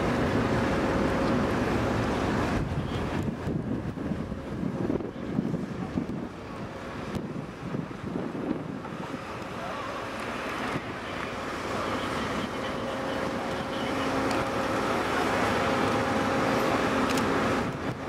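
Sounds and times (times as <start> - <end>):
wind on microphone: 2.2 - 11.0.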